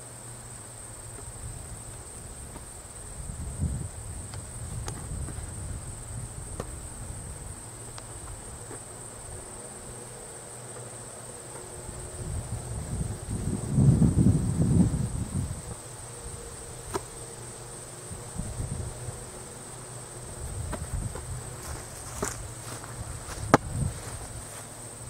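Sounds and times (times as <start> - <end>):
insects chirring: 0.0 - 25.0
wind rumble on microphone: 1.2 - 9.5, 11.8 - 17.0, 18.1 - 19.4, 20.2 - 24.6.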